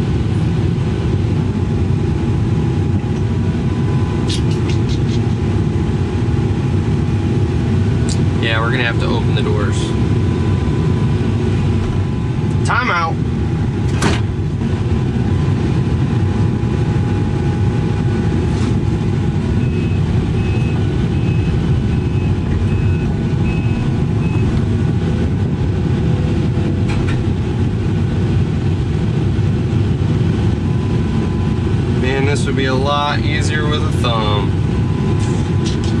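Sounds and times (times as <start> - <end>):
excavator engine and hydraulics: 2.0 - 36.0.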